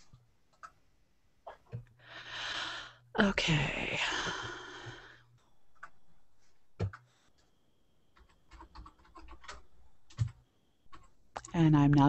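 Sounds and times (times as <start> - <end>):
computer keyboard keystrokes: 8.2 - 12.0.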